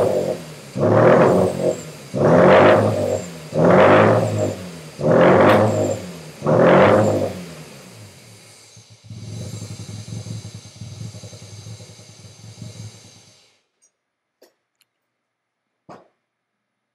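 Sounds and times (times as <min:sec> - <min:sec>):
rotary engine running unevenly: 0:00.0 - 0:13.6.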